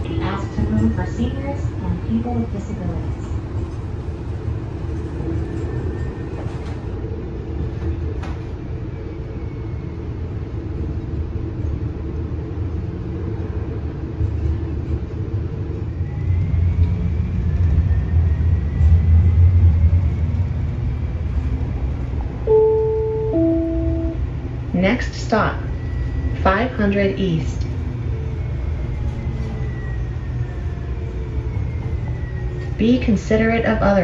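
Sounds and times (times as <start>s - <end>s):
streetcar wheels rumbling on rail: 0.0s - 34.0s.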